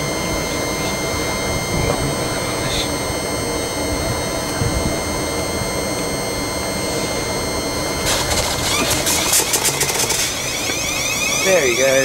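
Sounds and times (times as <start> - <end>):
train equipment humming and whining: 0.0 - 12.0
rough loud noise: 7.0 - 12.0.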